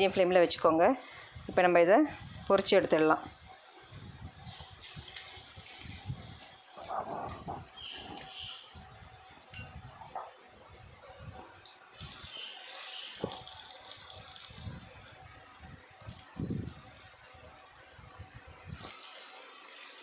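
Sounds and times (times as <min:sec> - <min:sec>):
fish sizzling in hot oil: 0:04.8 - 0:09.7, 0:11.9 - 0:17.7, 0:18.7 - 0:20.0.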